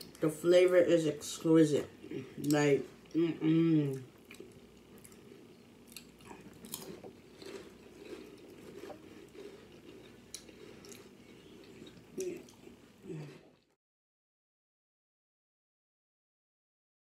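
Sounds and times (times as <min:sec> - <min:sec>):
chewing food: 0:03.9 - 0:13.8.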